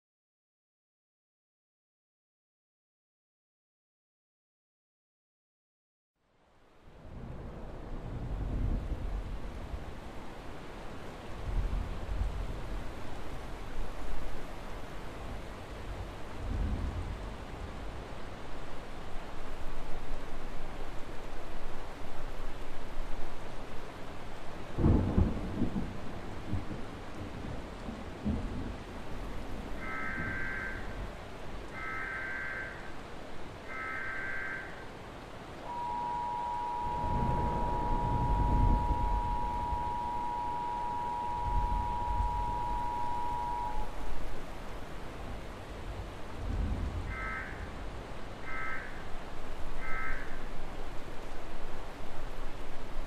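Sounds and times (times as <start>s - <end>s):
steady rain hiss: 6.2s - 53.0s
low thunder rumble: 24.8s - 31.1s, 35.7s - 44.2s, 46.4s - 47.4s
short high beep: 35.7s - 43.8s
two-tone attention signal: 35.7s - 43.9s.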